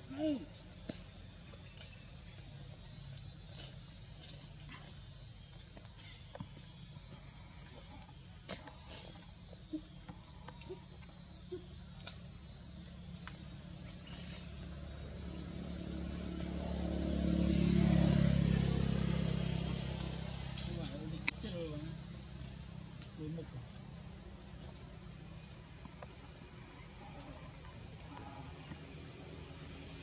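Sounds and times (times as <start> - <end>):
insects chirping: 0.0 - 30.0
vehicle engine hum: 12.7 - 24.4.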